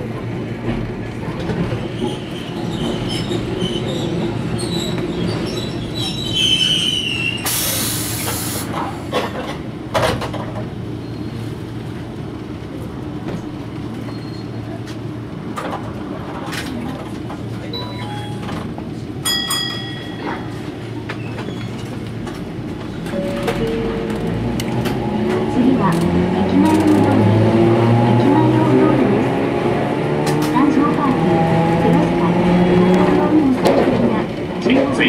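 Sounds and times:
tram running hum: 0:00.0 - 0:35.0
high wheel squeal: 0:02.0 - 0:08.4.

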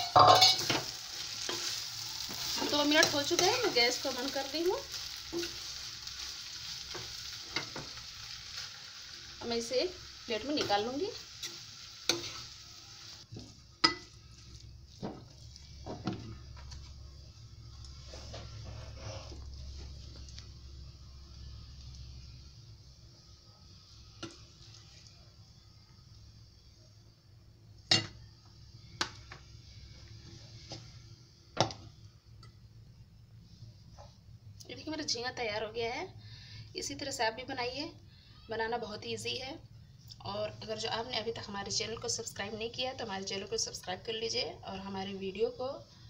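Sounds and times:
spoon scraping prawns in pan: 0:00.0 - 0:08.7, 0:10.5 - 0:12.6
faint pan sizzle: 0:00.0 - 0:46.0.

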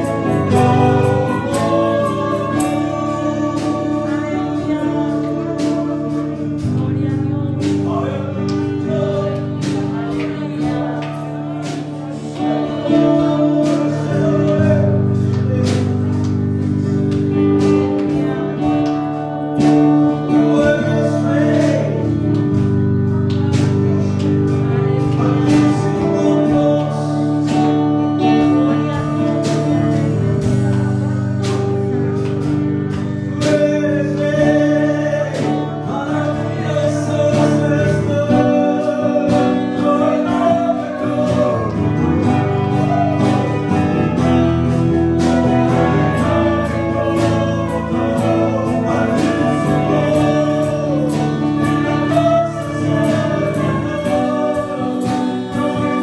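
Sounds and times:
instrumental accompaniment: 0:00.0 - 0:56.0
man singing worship song: 0:00.0 - 0:56.0.

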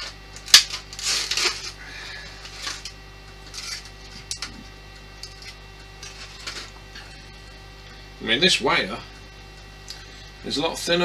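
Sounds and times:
small parts rustling and clicking: 0:00.0 - 0:01.8
low mains hum: 0:00.0 - 0:11.0.

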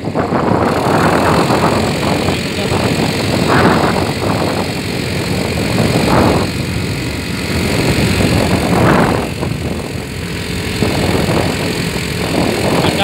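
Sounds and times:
moving vehicle rumble: 0:00.0 - 0:13.0
wind buffeting microphone: 0:00.0 - 0:13.0.

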